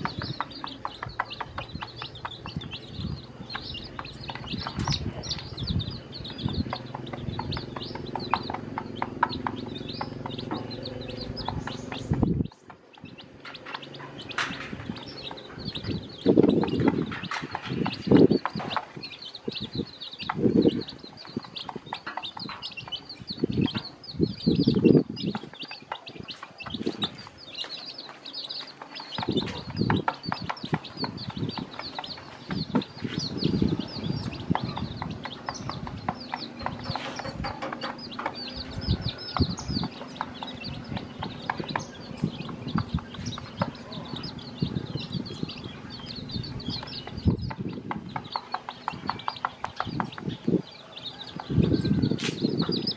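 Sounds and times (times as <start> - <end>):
beaks pecking on dish: 0.0 - 51.6
chicks peeping: 0.0 - 52.9
hen clucking: 0.0 - 52.9.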